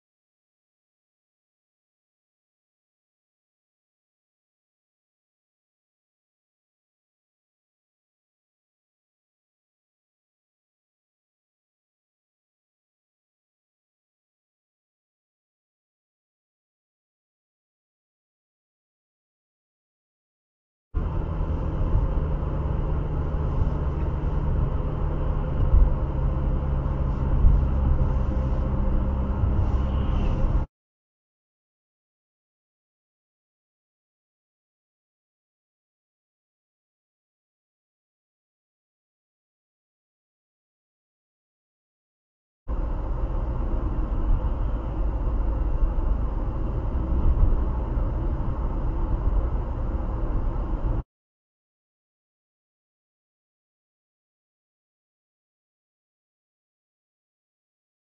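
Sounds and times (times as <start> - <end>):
engine and tyre rumble: 21.0 - 30.7, 42.7 - 51.1.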